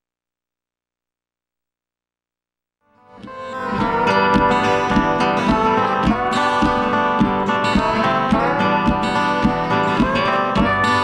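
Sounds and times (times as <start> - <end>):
plucked and strummed guitar: 2.9 - 11.0
steady beat: 3.1 - 11.0.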